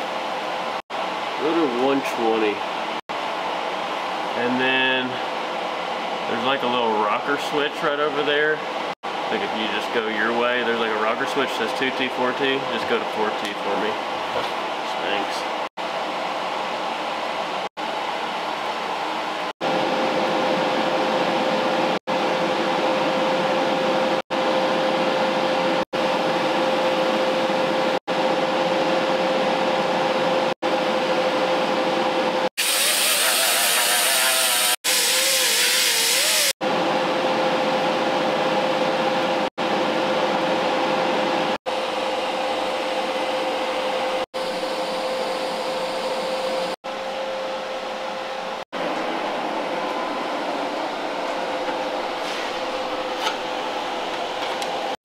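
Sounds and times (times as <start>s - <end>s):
welding hiss: 32.6s - 36.5s.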